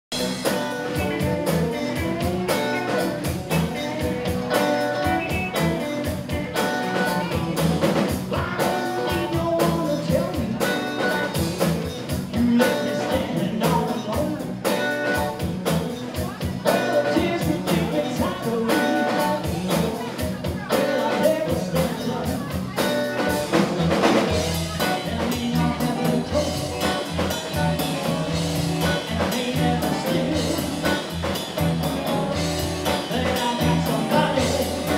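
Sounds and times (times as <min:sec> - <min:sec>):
drum kit beat: 0:00.1 - 0:34.9
electric guitars: 0:00.1 - 0:34.9.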